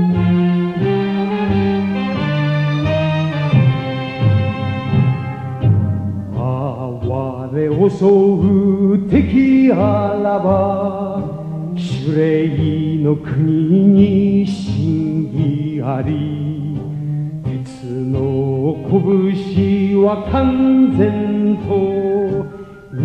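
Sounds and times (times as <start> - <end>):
sustained instrumental accompaniment: 0.0 - 23.0
person singing slow melody: 5.2 - 23.0.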